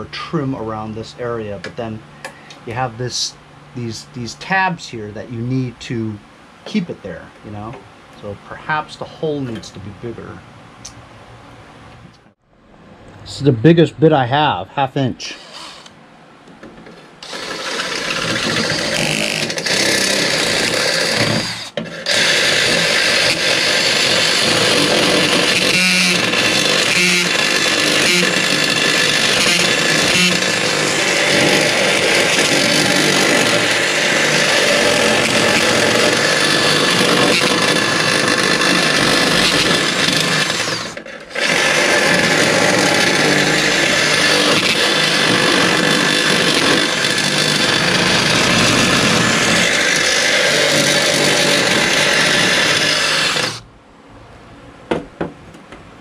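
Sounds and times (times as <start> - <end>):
cordless drill boring: 15.4 - 16.0, 17.2 - 53.6.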